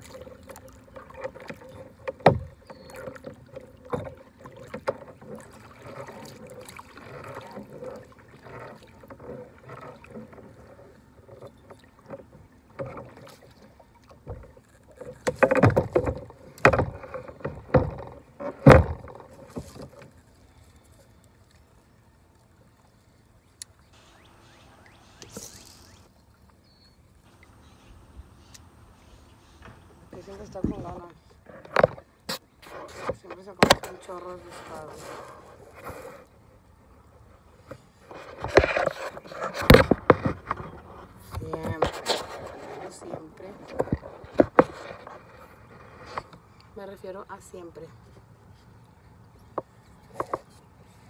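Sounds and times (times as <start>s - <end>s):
paddle knocking against hull: 0.0s - 20.2s, 29.5s - 36.2s, 37.6s - 46.4s
paddle splashing water: 0.0s - 51.0s.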